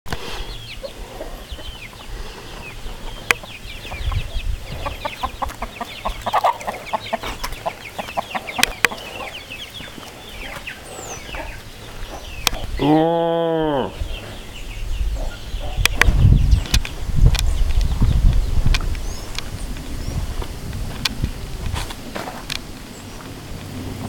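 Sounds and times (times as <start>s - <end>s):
chicks peeping: 0.1s - 13.0s, 13.9s - 23.3s
hen clucking: 0.2s - 13.1s
sharp clicks: 8.6s - 9.0s, 15.8s - 19.5s.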